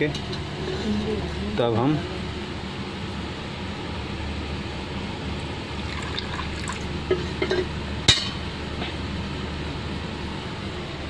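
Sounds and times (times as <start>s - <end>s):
water pouring into steel bowl: 5.8s - 6.9s.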